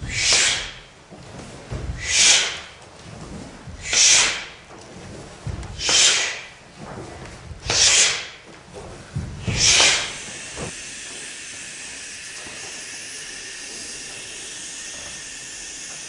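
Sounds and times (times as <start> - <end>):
bodies thudding on floor: 8.8 - 10.7
group breathing out hard: 9.4 - 16.0.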